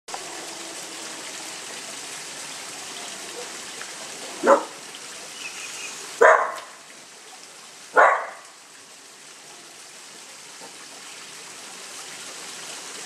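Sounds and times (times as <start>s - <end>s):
dog barking: 4.4s - 4.8s, 6.2s - 6.7s, 7.9s - 8.5s.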